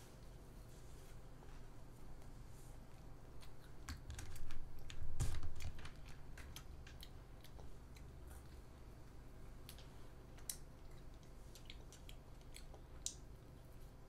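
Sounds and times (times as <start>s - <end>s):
child chewing crisp wafer: 2.9s - 14.0s.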